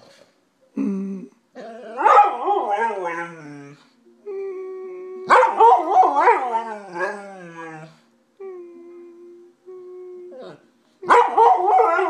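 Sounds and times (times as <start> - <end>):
dog howling: 1.6 - 3.8, 4.4 - 10.6.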